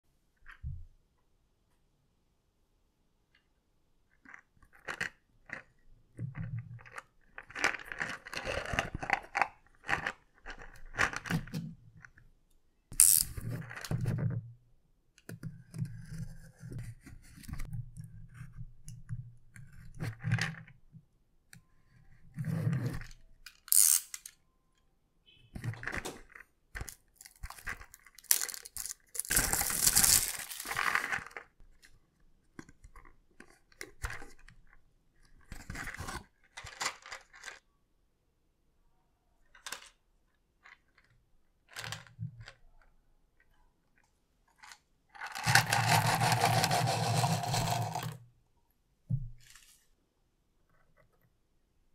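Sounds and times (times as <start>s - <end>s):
plastic shrink wrap crinkling: 26.8s - 31.4s.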